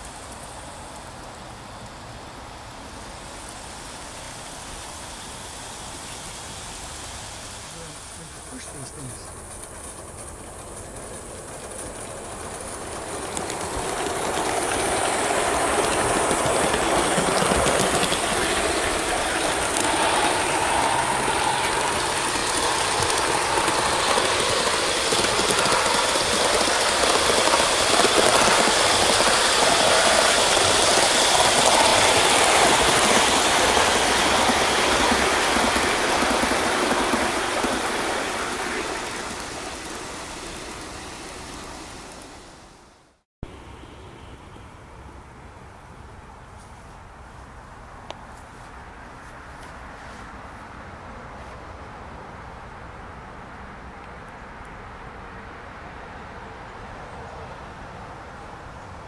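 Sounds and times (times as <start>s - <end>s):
wheels clattering on rails: 0.0s - 43.7s
model steam train running: 0.0s - 46.1s.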